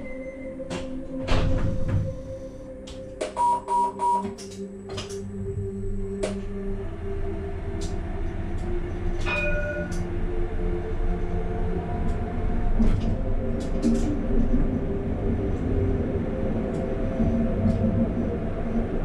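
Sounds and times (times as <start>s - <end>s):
tram rumbling on track: 4.9s - 19.0s.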